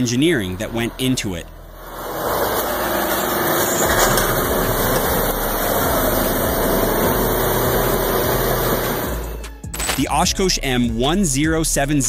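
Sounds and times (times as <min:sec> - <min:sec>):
wheels churning through mud: 0:00.0 - 0:09.4
truck diesel engine under load: 0:00.0 - 0:09.5.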